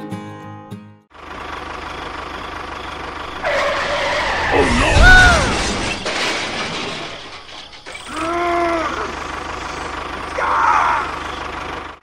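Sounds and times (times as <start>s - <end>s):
tractor engine chugging: 1.2s - 4.4s, 7.2s - 12.0s
squealing whine: 3.2s - 11.2s.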